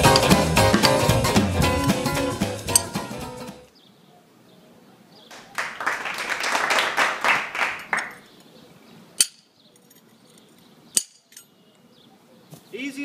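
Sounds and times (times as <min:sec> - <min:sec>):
hammer striking metal chisel: 0:00.0 - 0:01.0, 0:02.7 - 0:03.0, 0:11.0 - 0:11.4.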